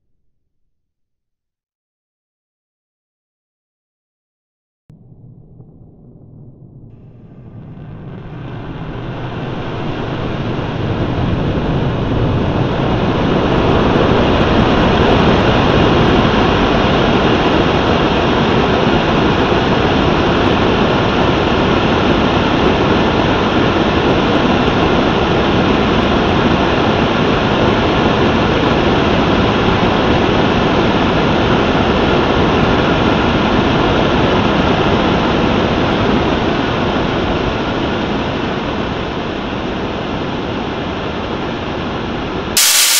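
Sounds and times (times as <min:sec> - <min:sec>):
rocket engine exhaust rushing: 0:04.9 - 0:32.6, 0:42.6 - 0:42.9.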